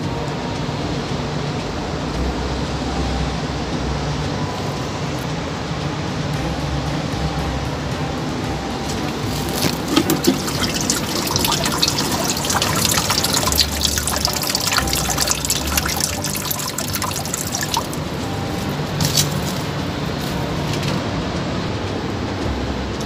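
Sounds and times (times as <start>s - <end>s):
water trickling into standing water: 8.6s - 20.2s.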